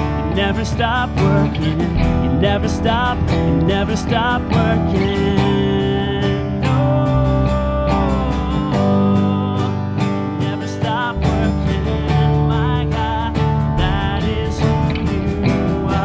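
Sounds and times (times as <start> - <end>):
strummed acoustic guitar: 0.0 - 16.0
steady drum beat: 0.1 - 5.6, 11.0 - 16.0.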